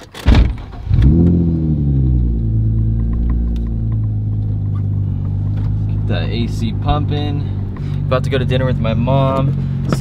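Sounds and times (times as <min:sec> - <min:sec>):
car engine starting and idling: 0:00.0 - 0:10.0
loud thump: 0:00.2 - 0:01.3.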